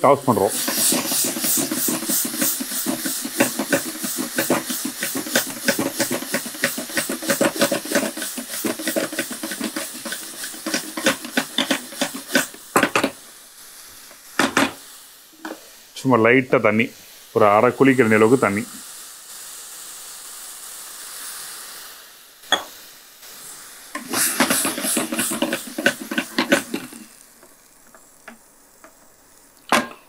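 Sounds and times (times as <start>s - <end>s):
vegetables sizzling in a frying pan: 0.0s - 30.0s
stirring clatter: 0.6s - 13.2s, 24.0s - 27.1s.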